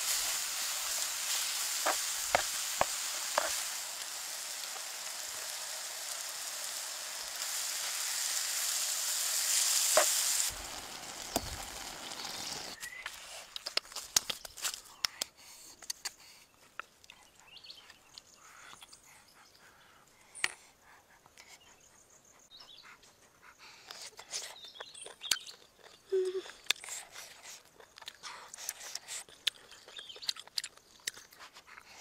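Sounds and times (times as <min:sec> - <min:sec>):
food sizzling in a wok: 0:00.0 - 0:12.8
spoon scraping a pan: 0:00.2 - 0:03.8.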